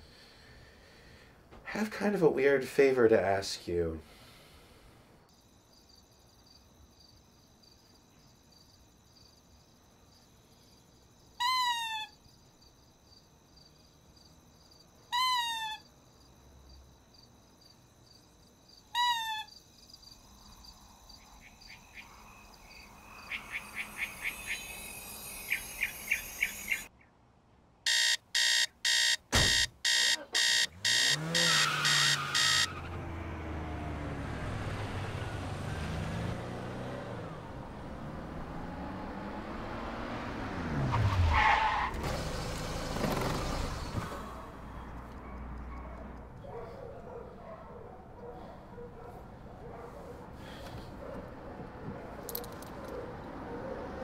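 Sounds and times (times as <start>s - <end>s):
faint high trill: 22.5s - 26.9s
alarm clock beeping: 27.9s - 32.7s
car engine on a street: 29.3s - 47.2s, 47.9s - 54.0s.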